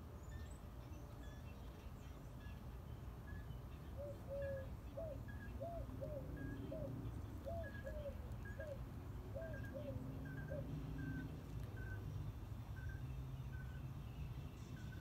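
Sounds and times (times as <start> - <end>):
low hooting bird call: 4.0 - 11.2.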